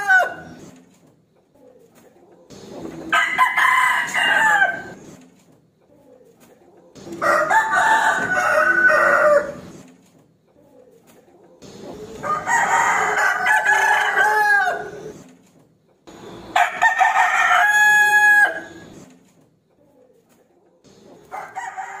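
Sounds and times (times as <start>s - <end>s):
rooster crowing: 0.0s - 0.6s, 3.1s - 5.0s, 7.0s - 9.7s, 12.2s - 15.2s, 16.5s - 18.9s, 21.3s - 22.0s.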